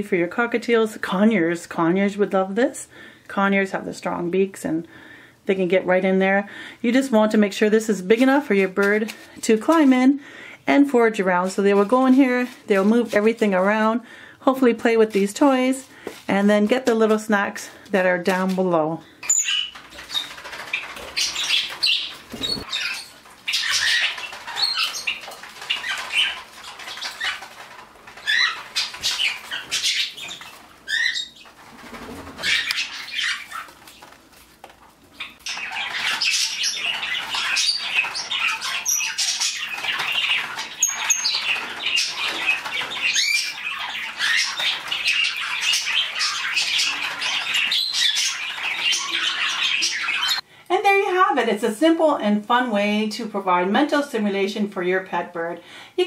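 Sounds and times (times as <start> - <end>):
small birds chirping: 6.8 - 34.4, 35.1 - 51.2.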